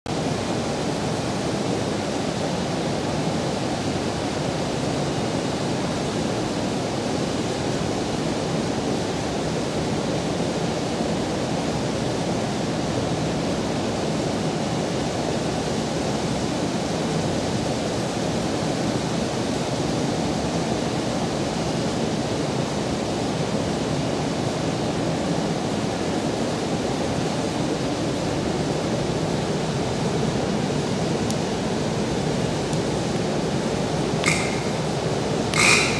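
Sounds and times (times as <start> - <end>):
industrial building ambient drone: 34.2 - 35.9.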